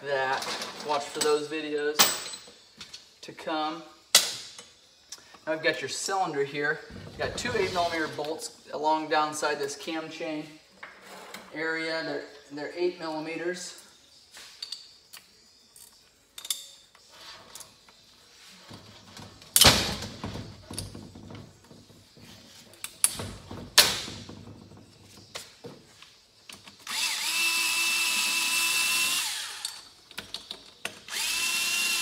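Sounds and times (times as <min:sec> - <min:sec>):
cordless power driver whining: 0:26.8 - 0:29.8, 0:31.1 - 0:32.0.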